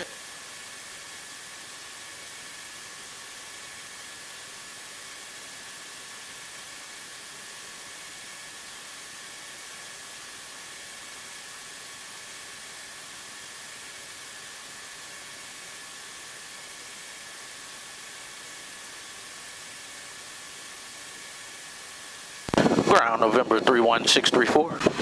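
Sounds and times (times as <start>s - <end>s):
electrical hiss: 0.0s - 25.0s.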